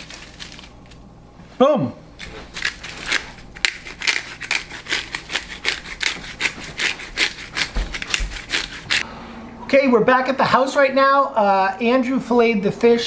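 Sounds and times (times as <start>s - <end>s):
pepper mill grinding: 0.0s - 1.0s, 2.2s - 9.0s.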